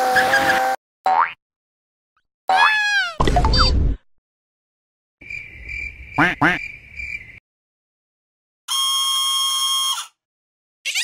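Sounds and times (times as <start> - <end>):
comic squawk: 2.5 - 3.2.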